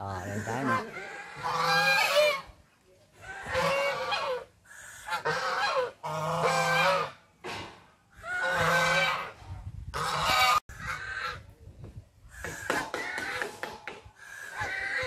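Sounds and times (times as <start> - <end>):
geese honking: 0.0 - 2.5, 3.2 - 7.2, 8.1 - 9.4, 10.0 - 11.4, 14.2 - 15.0.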